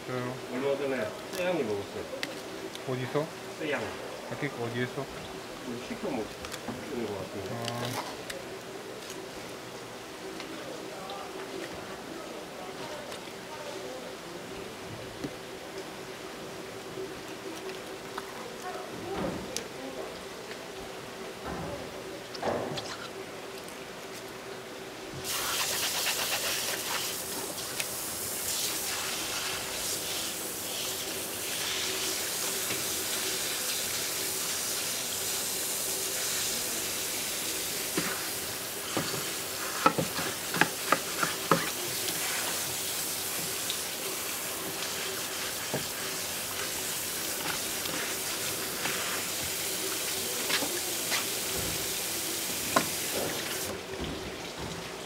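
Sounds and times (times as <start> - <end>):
water running: 25.2 - 55.0.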